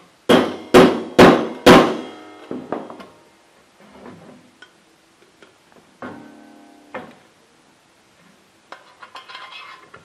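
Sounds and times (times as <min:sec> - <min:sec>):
hammer striking metal: 0:00.3 - 0:03.0.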